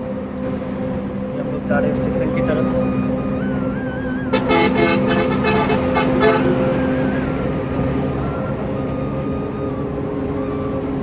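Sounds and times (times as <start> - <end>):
bus engine running: 0.0 - 11.0
horn toots: 4.2 - 7.9.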